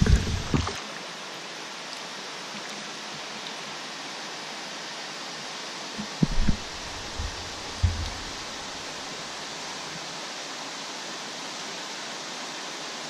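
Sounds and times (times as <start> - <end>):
low thumps: 0.0 - 0.8, 6.0 - 8.7
waterfall rushing: 0.0 - 3.0, 3.6 - 10.7.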